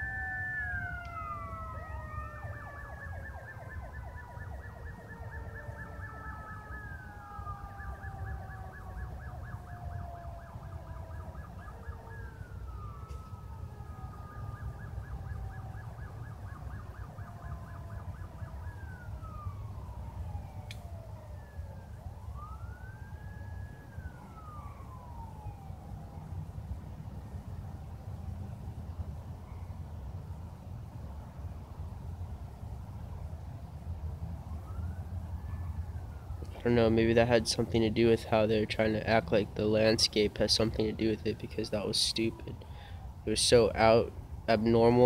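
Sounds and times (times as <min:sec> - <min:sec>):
electronic sirens wailing: 0:00.0 - 0:28.2, 0:33.6 - 0:45.0.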